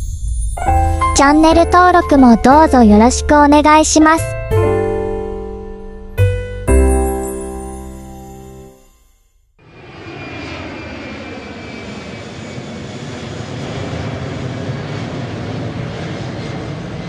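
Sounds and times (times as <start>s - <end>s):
airplane drone in flight: 9.6s - 17.0s.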